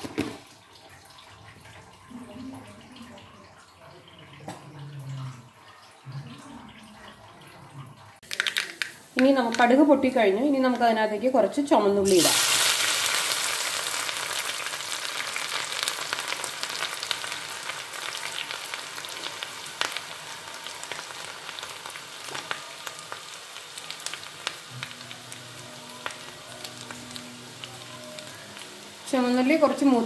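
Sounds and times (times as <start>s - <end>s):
shallots sizzling in hot oil: 8.2s - 30.0s.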